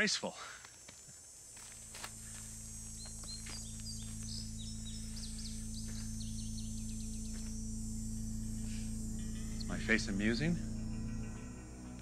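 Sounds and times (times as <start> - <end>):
steady low hum: 0.6 - 12.0
small birds chirping: 2.1 - 12.0.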